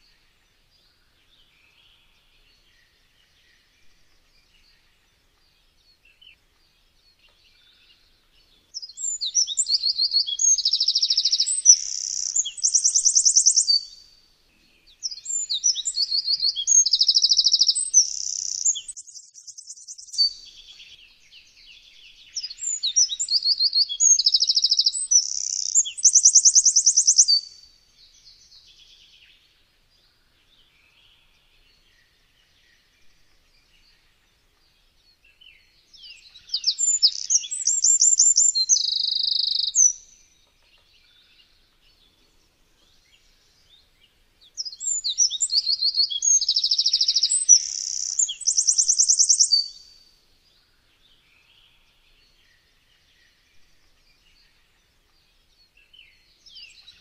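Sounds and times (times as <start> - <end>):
wren singing trills: 7.1 - 14.1, 14.9 - 29.4, 34.8 - 42.2, 42.9 - 50.1.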